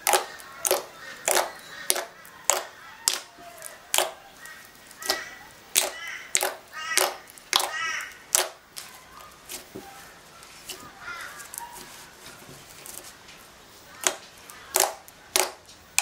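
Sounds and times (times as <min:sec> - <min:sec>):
slime popping and squelching: 0:00.0 - 0:08.9, 0:14.0 - 0:16.0.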